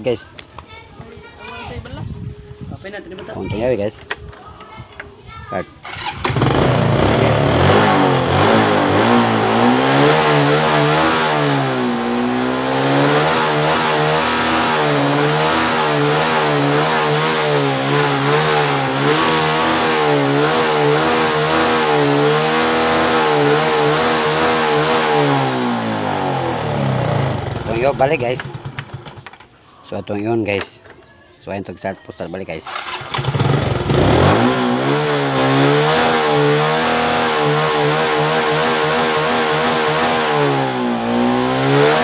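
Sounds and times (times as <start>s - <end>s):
motorcycle engine starting and revving: 5.8s - 29.5s, 32.6s - 42.0s.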